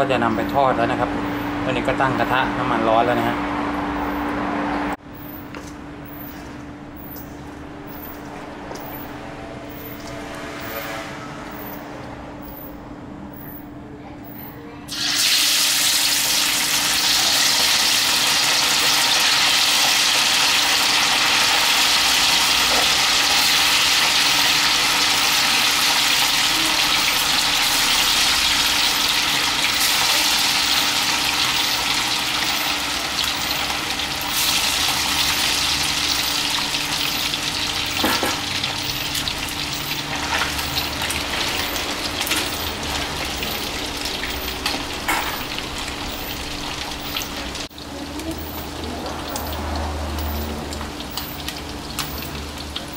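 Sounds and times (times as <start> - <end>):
chicken deep-frying in oil: 14.9 - 52.9.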